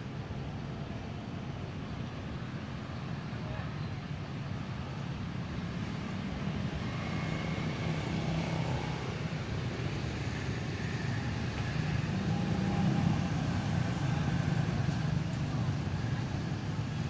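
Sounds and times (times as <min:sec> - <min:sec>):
low hum of passing vehicles: 0:00.0 - 0:17.0.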